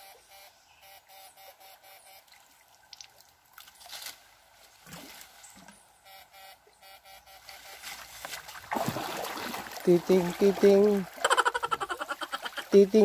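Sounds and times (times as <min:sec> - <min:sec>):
water sloshing around legs: 0:07.6 - 0:12.8.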